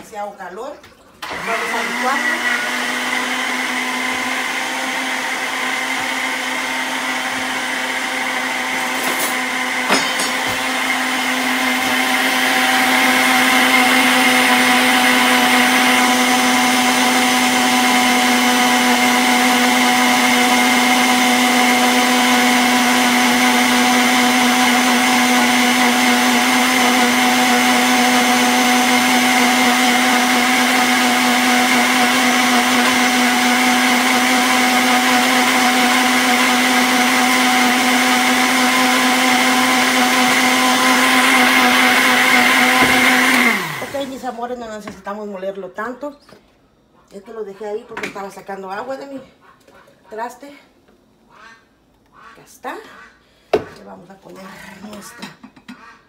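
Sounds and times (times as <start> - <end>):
electric blender running: 1.2 - 44.3.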